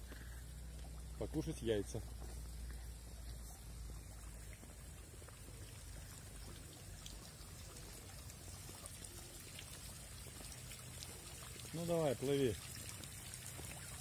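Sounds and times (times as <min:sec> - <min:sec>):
fountain water trickling and splashing: 0:00.0 - 0:14.0.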